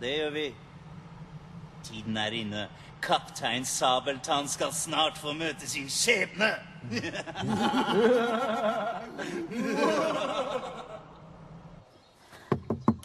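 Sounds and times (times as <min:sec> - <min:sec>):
men laughing: 0:06.8 - 0:11.2.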